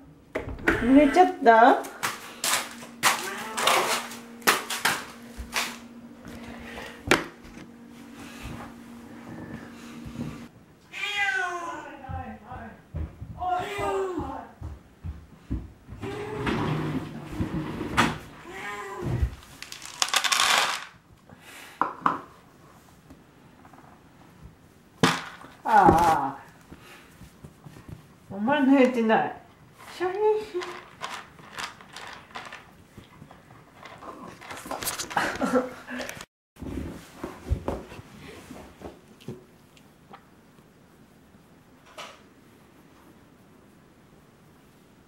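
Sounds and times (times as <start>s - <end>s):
steady low hum: 0.0s - 10.8s
dry cat food rattling into container: 19.5s - 21.0s, 29.8s - 32.7s.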